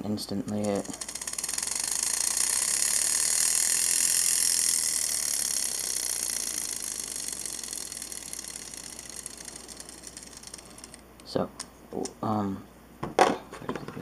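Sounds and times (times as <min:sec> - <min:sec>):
spinning top gear whirring: 0:00.5 - 0:11.1.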